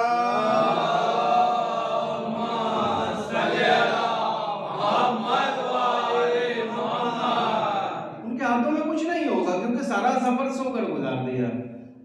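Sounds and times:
men chanting in unison: 0.0 - 8.2.

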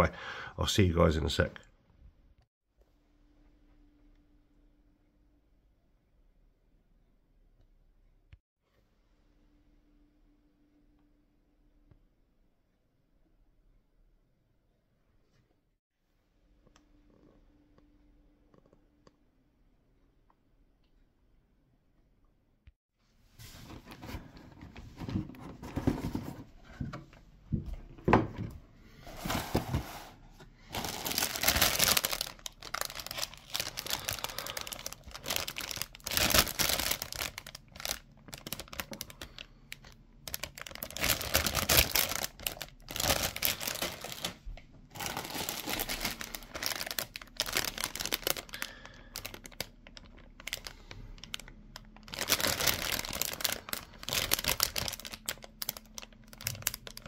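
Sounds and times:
plastic bags crinkling: 30.7 - 57.0.

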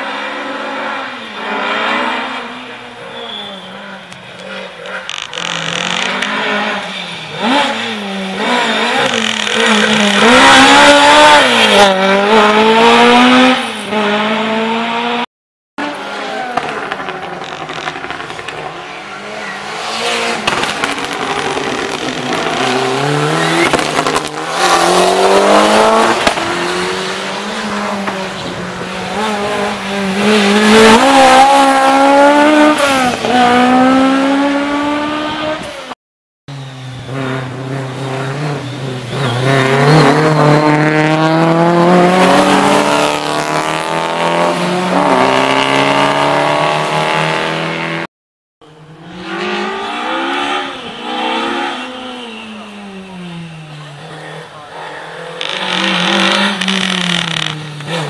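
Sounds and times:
rally car engines revving: 0.0 - 58.0.

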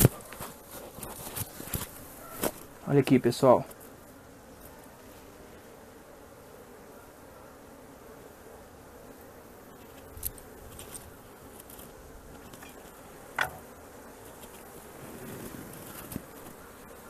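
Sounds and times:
honey bees buzzing: 0.0 - 17.0
sharp knocks: 13.4 - 13.7.

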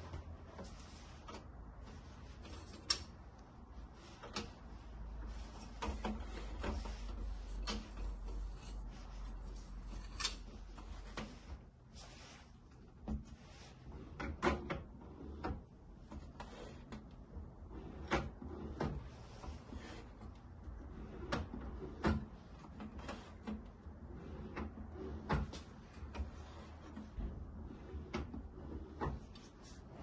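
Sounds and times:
hard parts clicking and clunking: 5.4 - 8.9.

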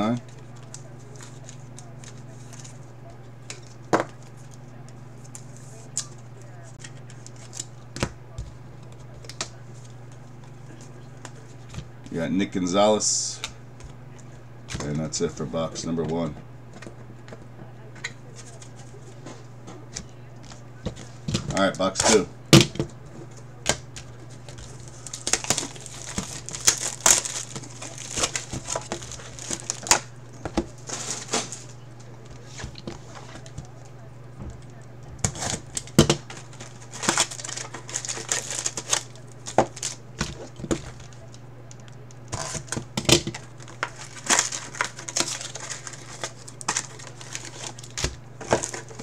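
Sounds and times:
steady low hum: 0.0 - 49.0
plastic shrink wrap crinkling: 23.6 - 34.0, 34.7 - 49.0.

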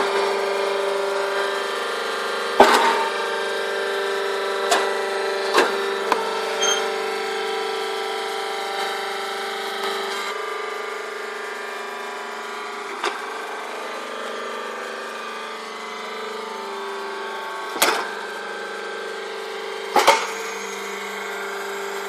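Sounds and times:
hay baler humming: 4.7 - 8.2.

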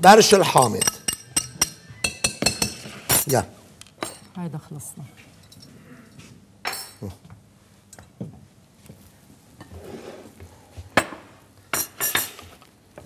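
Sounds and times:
kitchenware clinking and knocking: 0.6 - 3.3.

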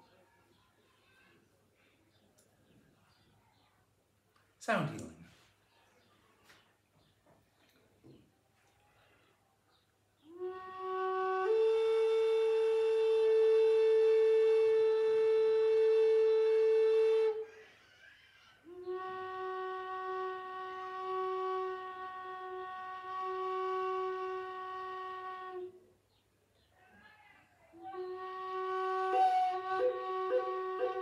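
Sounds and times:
wooden flute long notes: 10.3 - 17.5, 18.7 - 25.8, 27.8 - 31.0.

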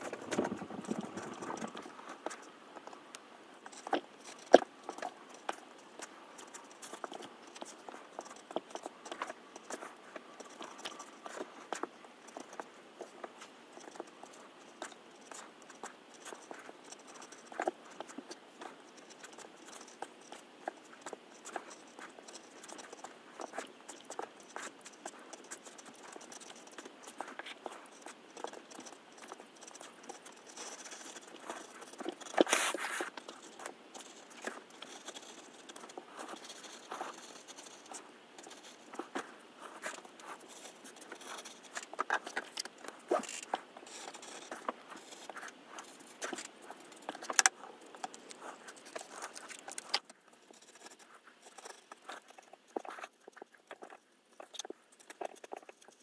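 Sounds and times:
paper crackles: 23.5 - 55.6.

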